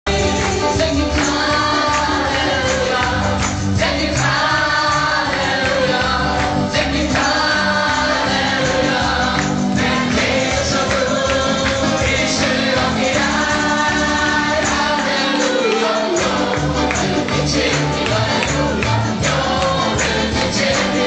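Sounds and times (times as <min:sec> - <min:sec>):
keyboard: 0:00.0 - 0:21.0
man and woman singing: 0:00.1 - 0:21.0.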